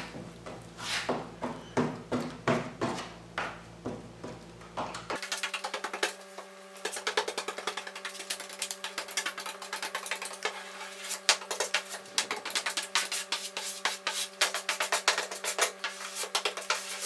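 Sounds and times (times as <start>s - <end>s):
scraping strokes on wood: 0.8s - 1.3s, 6.8s - 17.0s.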